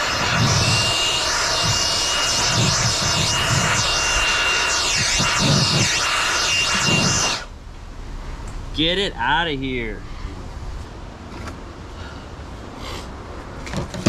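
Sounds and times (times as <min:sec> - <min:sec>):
power drill with hole saw grinding: 0:00.0 - 0:07.5.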